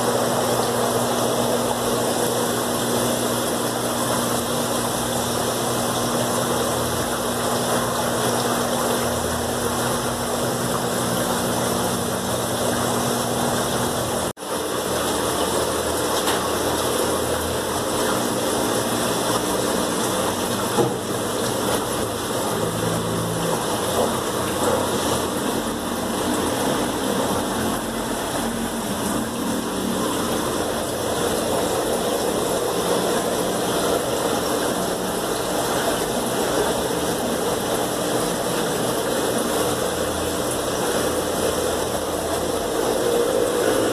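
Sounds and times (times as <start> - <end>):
low pump hum: 0.0 - 43.9
water rushing: 0.0 - 43.9.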